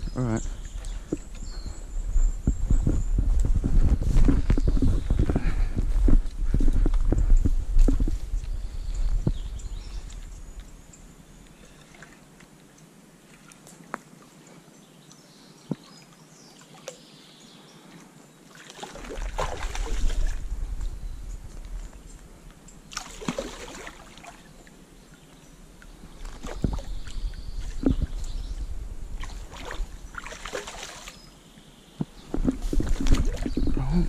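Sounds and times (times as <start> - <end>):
low rumble: 0.0 - 10.9, 19.8 - 22.4
water splashing and sloshing: 0.4 - 14.4, 18.4 - 22.0, 22.9 - 31.4, 32.0 - 34.0.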